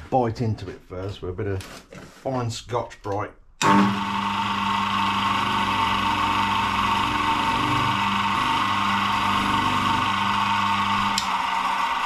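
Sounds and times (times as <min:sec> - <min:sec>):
polishing motor humming and whining: 0:03.6 - 0:12.0.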